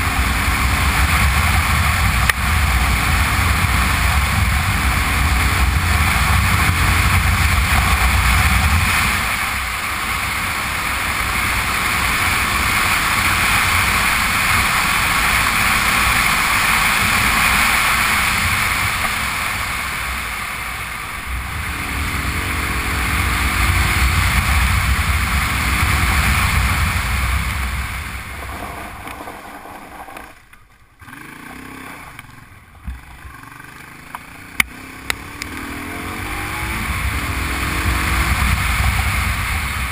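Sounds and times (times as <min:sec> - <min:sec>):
rushing wind: 0:00.0 - 0:31.9, 0:34.2 - 0:39.9
motorcycle engine running: 0:00.0 - 0:39.9
tyres on gravel: 0:27.5 - 0:33.4.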